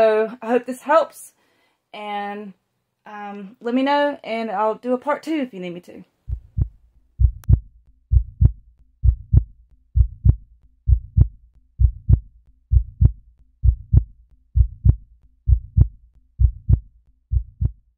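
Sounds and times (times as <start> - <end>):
heartbeat thumps: 6.3 - 17.9.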